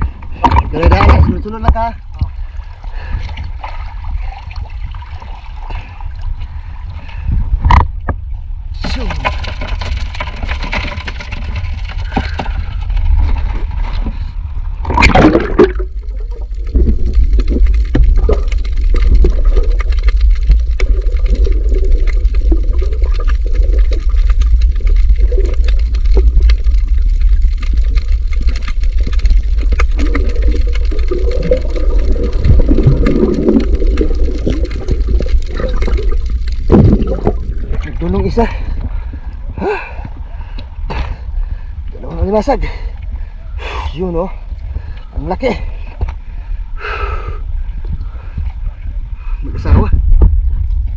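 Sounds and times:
water splashing: 0.0s - 6.2s, 8.8s - 39.3s
muffled underwater rumble: 0.0s - 50.9s
loud splash: 14.8s - 38.3s.

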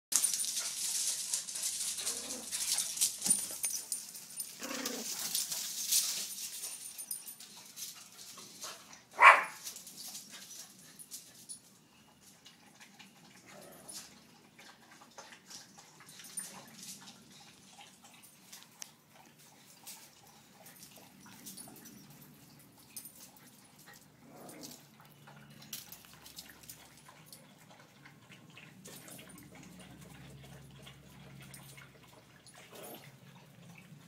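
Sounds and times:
rustling: 0.1s - 11.6s
small dog barking: 9.2s - 9.6s.

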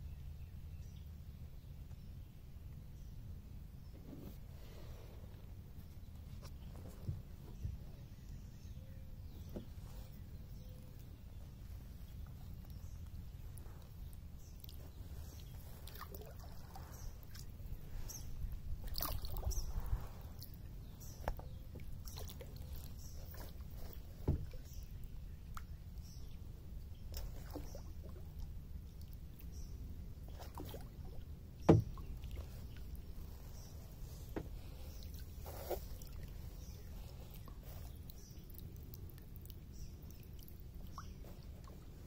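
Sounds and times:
low steady rumble: 0.0s - 42.0s
water slapping kayak hull: 11.1s - 38.4s.

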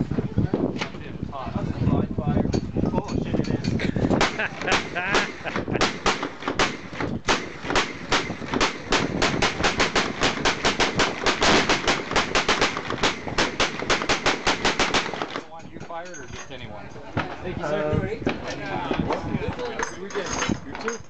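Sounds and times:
gunshots: 4.1s - 15.5s.

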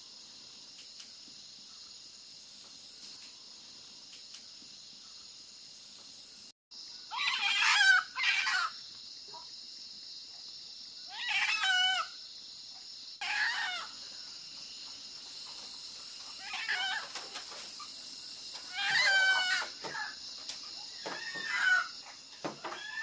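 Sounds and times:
crickets chirring: 0.0s - 23.0s.

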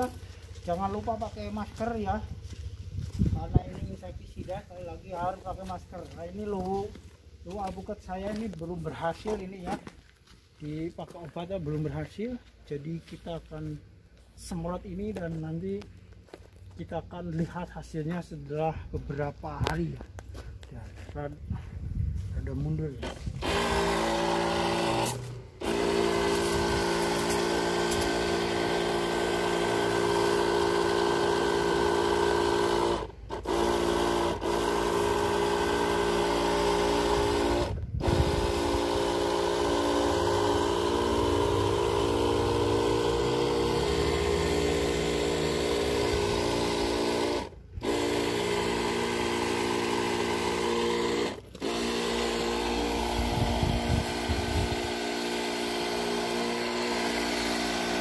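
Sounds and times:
sprayer pump motor humming: 0.0s - 10.0s, 22.9s - 58.0s.

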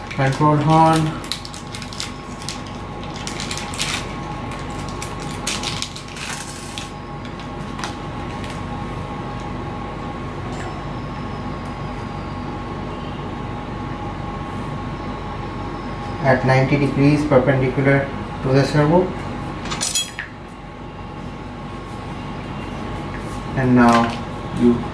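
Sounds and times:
room hum: 0.0s - 24.9s
faint high whine: 9.1s - 19.1s.

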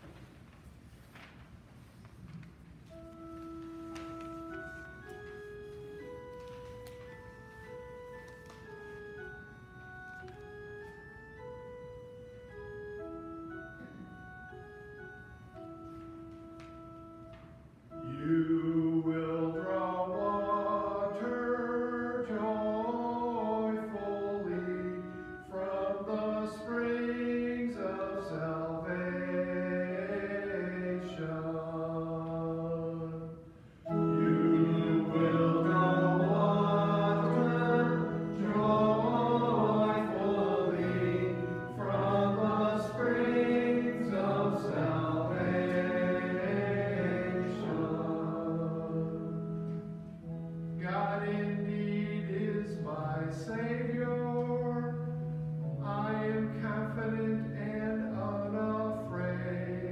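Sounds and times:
sustained organ chords: 2.2s - 59.9s
voices singing slow melody: 17.9s - 59.9s.

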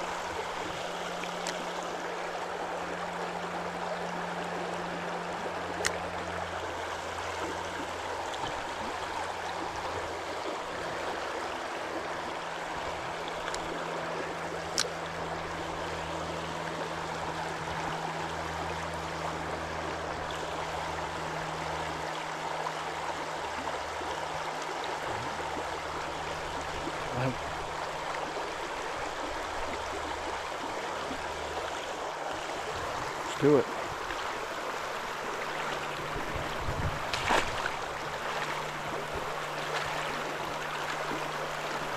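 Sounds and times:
river rushing over rocks: 25.8s - 41.9s.

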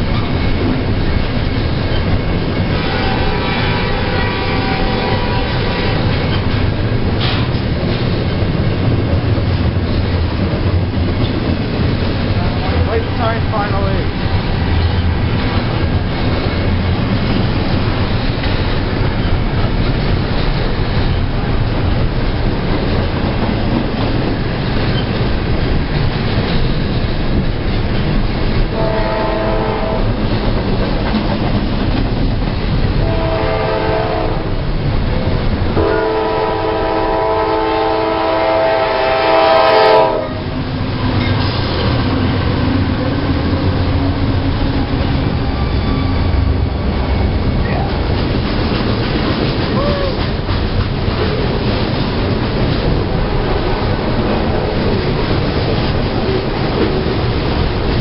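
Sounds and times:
freight train rumbling on rails: 0.0s - 58.0s
multi-tone train horn blasts: 2.7s - 6.5s, 28.7s - 30.2s, 33.0s - 34.6s, 35.8s - 40.4s.

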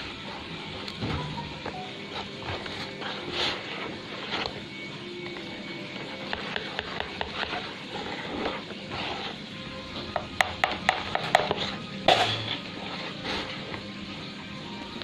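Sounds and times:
whisk stirring batter: 0.0s - 1.0s, 1.6s - 14.2s
whisk clicking against bowl: 6.3s - 7.6s.

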